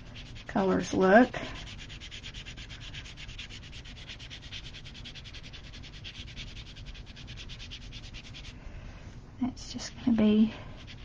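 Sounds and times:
pen scrubbing on paper: 0.0s - 8.6s, 10.7s - 11.0s.

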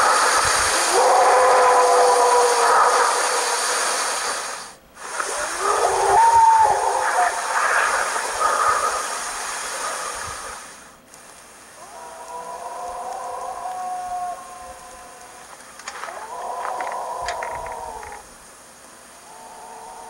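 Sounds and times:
wavering howls: 0.0s - 3.5s, 5.3s - 9.5s, 11.8s - 18.3s, 19.2s - 20.0s
steady hiss: 0.0s - 20.0s.

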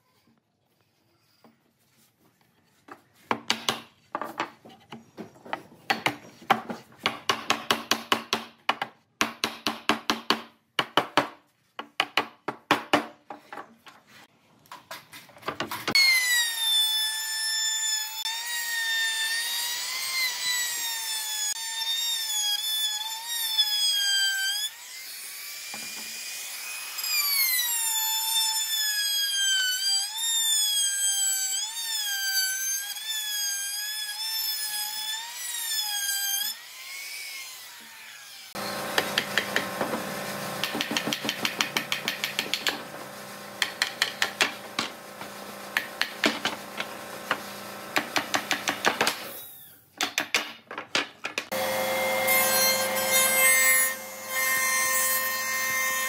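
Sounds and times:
electric router high whine: 38.6s - 40.7s, 42.8s - 48.0s, 51.5s - 56.0s
wooden mallet knocking on wood: 40.6s - 42.9s, 43.6s - 45.0s.

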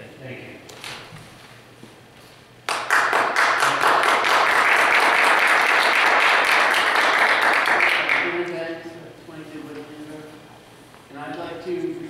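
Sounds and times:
audience applauding: 2.7s - 8.4s.

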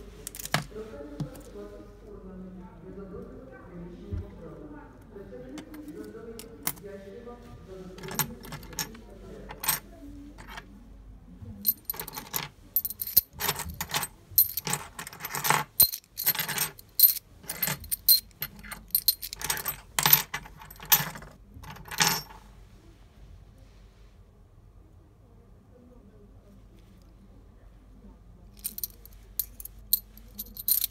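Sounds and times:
metal keys clinking on a table: 0.3s - 1.5s, 8.0s - 9.8s, 11.7s - 22.4s, 28.6s - 30.9s.

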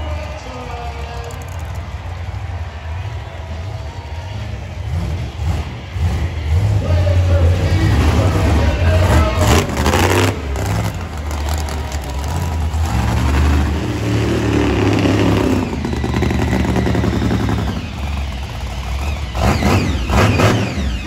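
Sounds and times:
monster truck engines revving: 0.0s - 21.0s.

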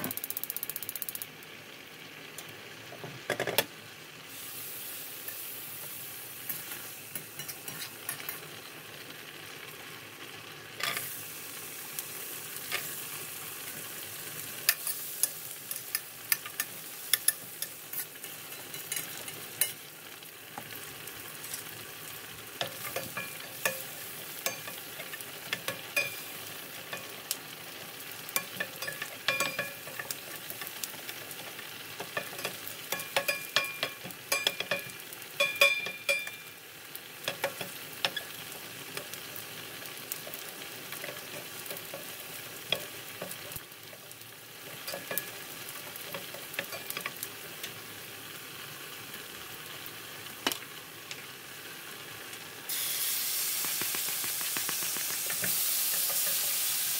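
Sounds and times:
food sizzling in a frying pan: 0.0s - 56.9s
utensil clicking against pan: 53.6s - 56.4s.

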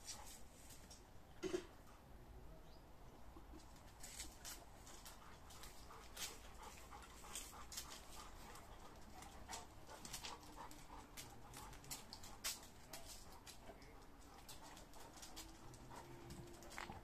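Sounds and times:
paws scuffing on concrete: 3.6s - 17.0s
dogs panting: 4.6s - 17.0s.

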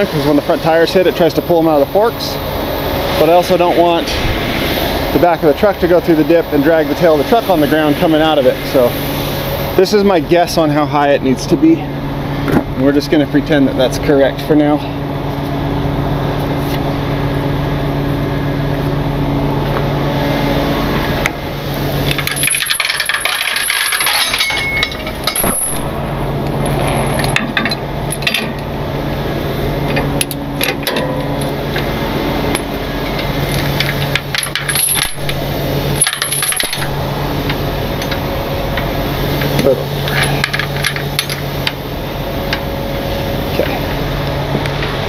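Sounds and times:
engine hum: 0.0s - 45.0s
steel chains clinking and rattling: 22.0s - 26.0s, 32.5s - 37.0s.

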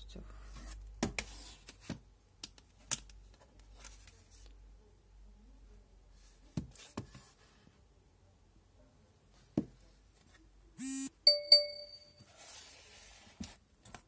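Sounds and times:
electronic bell dings: 11.3s - 12.2s.

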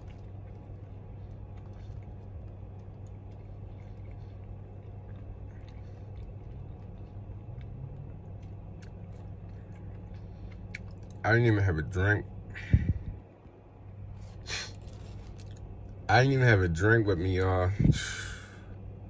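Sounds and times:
person chewing: 0.0s - 11.2s, 14.2s - 15.9s
low hum: 0.0s - 19.0s.

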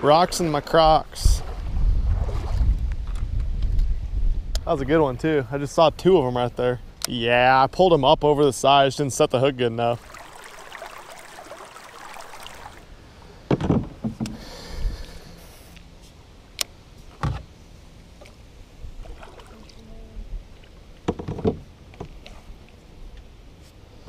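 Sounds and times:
water moving around canoe hull: 0.2s - 3.2s, 9.9s - 12.9s, 18.2s - 23.7s
knocks against canoe side: 13.5s - 14.4s, 21.1s - 22.2s.

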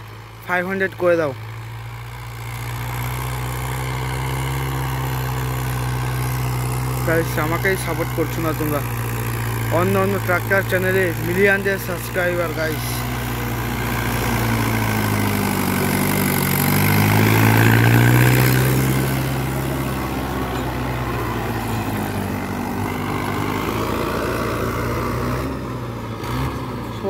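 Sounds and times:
tractor diesel engine running: 0.0s - 27.0s
rotavator churning soil: 3.8s - 24.4s.

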